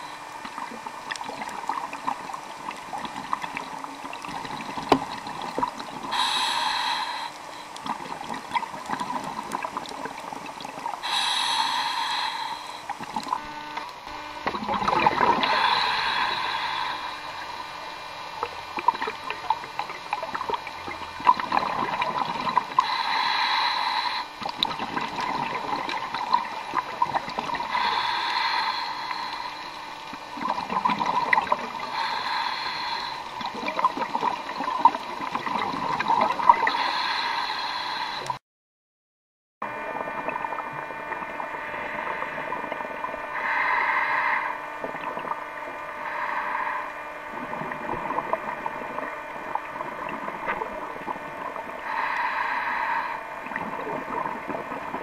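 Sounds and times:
diver breathing through regulator: 0:00.0 - 0:00.4, 0:06.1 - 0:09.3, 0:11.0 - 0:13.5, 0:15.0 - 0:17.8, 0:21.7 - 0:24.6, 0:27.4 - 0:29.9, 0:30.8 - 0:33.8, 0:36.2 - 0:38.4, 0:41.7 - 0:48.4, 0:51.8 - 0:53.7
bubbly crackling gurgle: 0:00.0 - 0:11.1, 0:12.8 - 0:13.5, 0:14.4 - 0:37.2, 0:39.7 - 0:44.0, 0:44.6 - 0:52.3, 0:53.3 - 0:55.0.

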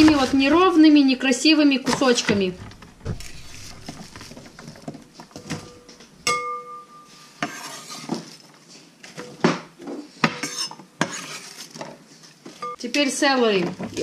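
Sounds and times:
glass bowl clink: 0:05.8 - 0:07.2.

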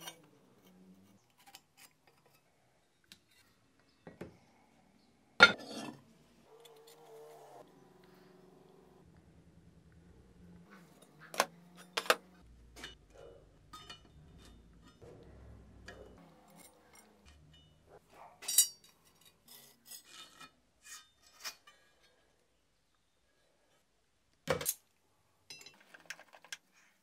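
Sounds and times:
metal scraping: 0:05.4 - 0:08.9, 0:10.6 - 0:22.3
metallic clinks: 0:18.4 - 0:19.3.

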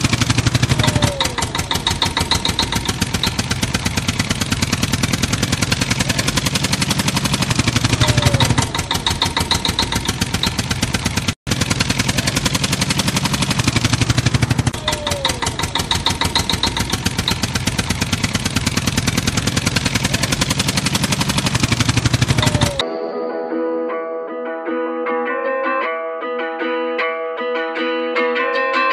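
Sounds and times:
tractor engine chugging: 0:00.0 - 0:22.8.

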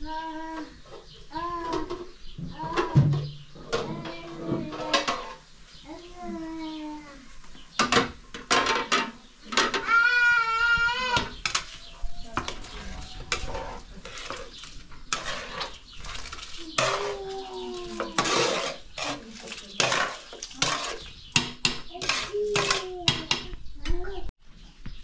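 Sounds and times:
metal spoon scraping in pot: 0:11.4 - 0:23.1.

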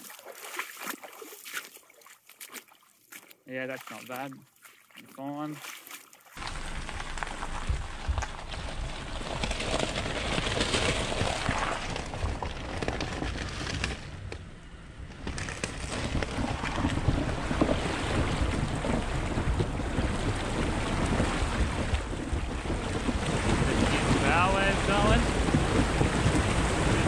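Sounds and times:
water splashing: 0:00.0 - 0:14.1, 0:15.3 - 0:27.0
wind buffeting microphone: 0:06.4 - 0:14.4, 0:15.1 - 0:27.0
car engine running: 0:06.4 - 0:27.0.

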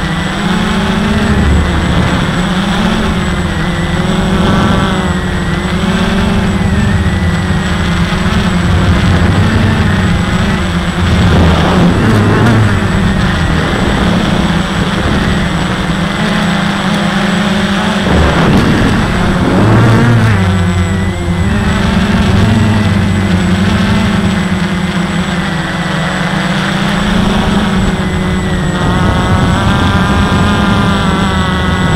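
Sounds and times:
quadcopter motors buzzing: 0:00.0 - 0:31.9.

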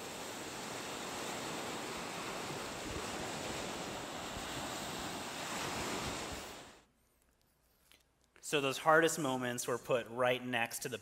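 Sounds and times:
waves washing onto beach: 0:00.0 - 0:06.8.

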